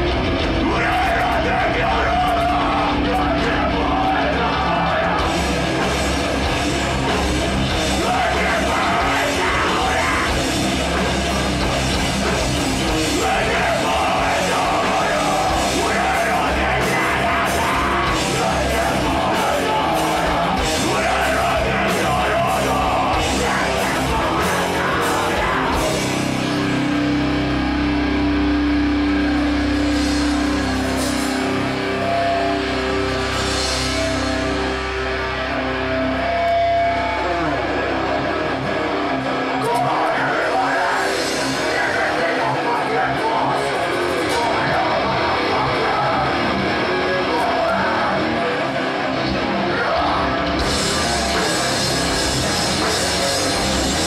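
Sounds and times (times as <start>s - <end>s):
heavy rock band playing: 0.0s - 54.0s
person singing: 7.8s - 10.6s, 12.9s - 26.6s, 39.5s - 49.0s.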